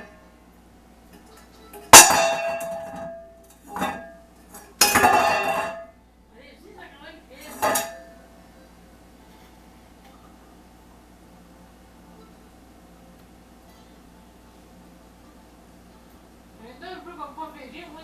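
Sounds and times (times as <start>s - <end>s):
metal bowl clattering on wood floor: 1.3s - 5.9s, 7.5s - 8.2s.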